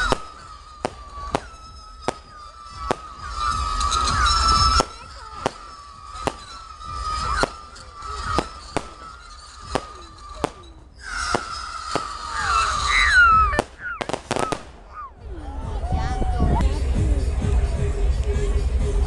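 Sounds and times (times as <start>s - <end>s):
fireworks bangs: 0.0s - 15.1s
high firework whistle: 0.0s - 15.1s
short falling whistles: 11.0s - 15.1s.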